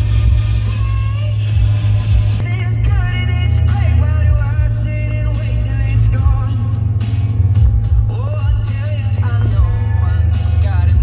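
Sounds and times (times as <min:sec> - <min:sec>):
low road noise rumble: 0:00.0 - 0:11.0
music with bending melody: 0:00.0 - 0:11.0.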